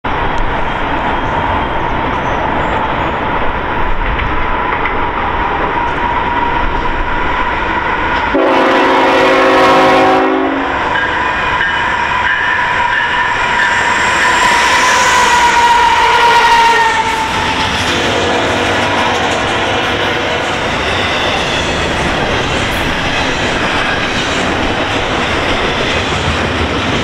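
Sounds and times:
train wheels rumbling on rails: 0:00.0 - 0:27.0
locomotive air horn: 0:08.3 - 0:10.9, 0:14.5 - 0:17.3.

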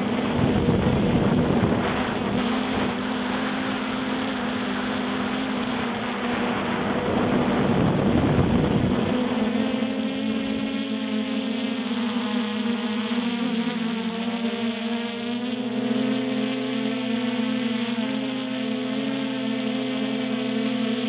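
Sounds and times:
wind rushing across microphone: 0:00.0 - 0:09.4
drone propellers humming: 0:00.0 - 0:21.0.

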